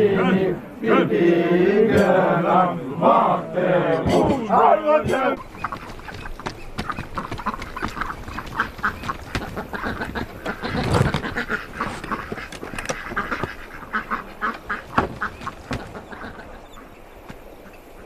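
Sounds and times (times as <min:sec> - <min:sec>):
ducks quacking: 0:00.0 - 0:18.0
dull thud: 0:04.0 - 0:16.5
scattered knocks: 0:04.0 - 0:16.6.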